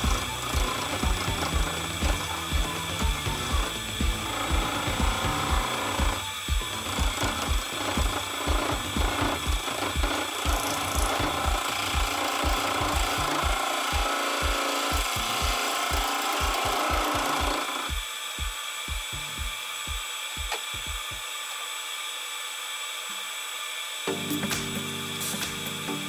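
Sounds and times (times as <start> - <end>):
wood lathe spinning: 0.0 - 24.0
low mechanical hum: 0.0 - 26.0.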